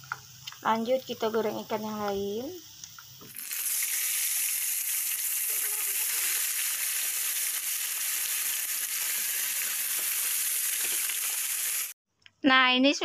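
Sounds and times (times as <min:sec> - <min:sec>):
fish sizzling in hot oil: 0:03.0 - 0:12.0.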